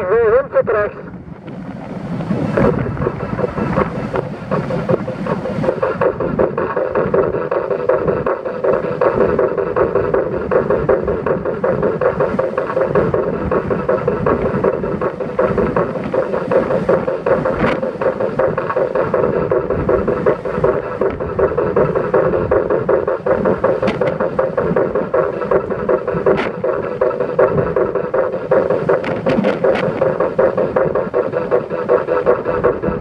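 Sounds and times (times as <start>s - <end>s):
wind buffeting microphone: 0.0s - 33.0s
car wind and road noise: 0.6s - 5.4s.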